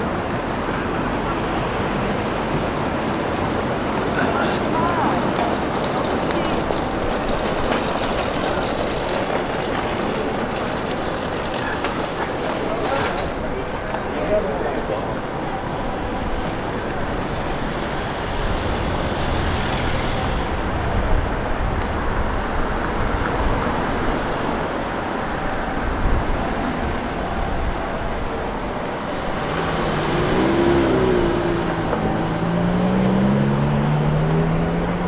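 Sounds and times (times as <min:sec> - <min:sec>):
busy road traffic: 0:00.0 - 0:35.0
engine rising in pitch: 0:29.2 - 0:35.0.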